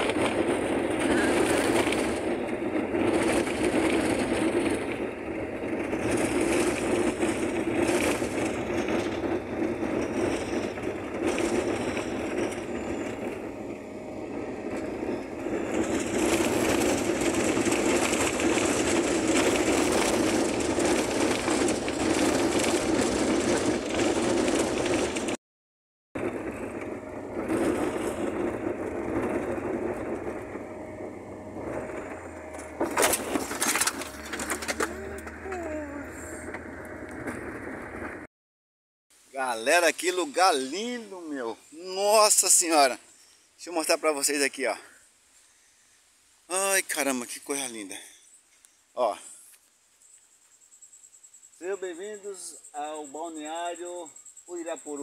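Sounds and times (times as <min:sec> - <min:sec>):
tyres on dirt road: 0:00.0 - 0:25.4, 0:26.2 - 0:38.3, 0:39.1 - 0:55.0
van engine running: 0:00.0 - 0:25.4, 0:26.2 - 0:38.3.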